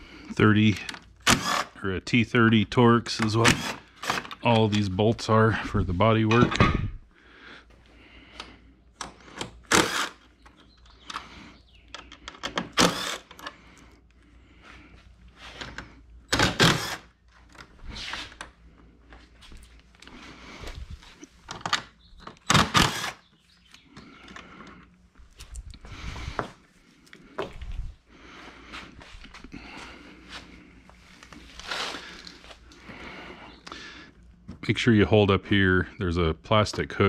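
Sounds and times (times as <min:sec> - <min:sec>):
cordless driver whirring: 0:00.8 - 0:01.8, 0:03.3 - 0:04.5, 0:09.2 - 0:10.3, 0:12.2 - 0:13.6, 0:16.3 - 0:17.1, 0:22.4 - 0:23.2.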